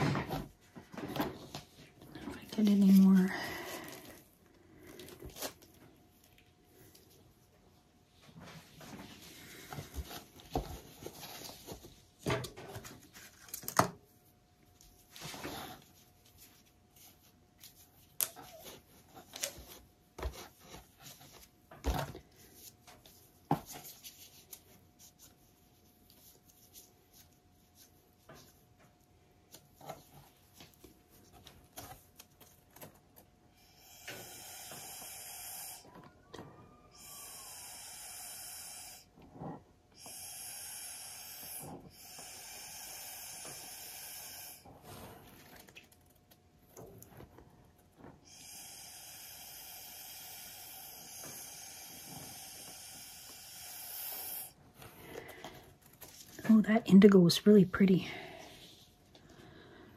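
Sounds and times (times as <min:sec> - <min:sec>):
breath hissing through straw: 0:33.6 - 0:35.9, 0:37.0 - 0:39.1, 0:40.0 - 0:45.1, 0:48.3 - 0:54.6.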